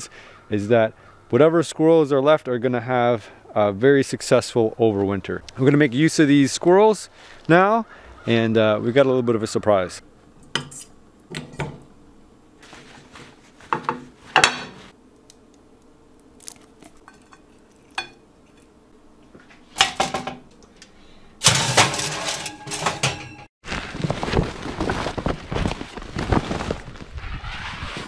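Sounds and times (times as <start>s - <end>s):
metal tongs clinking on pot: 17.0s - 18.2s
plastic tarp rustling: 21.4s - 28.0s.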